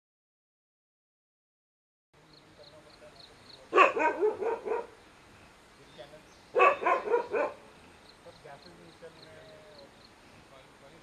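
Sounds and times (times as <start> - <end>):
dog barking: 3.7 - 5.0, 6.5 - 7.6.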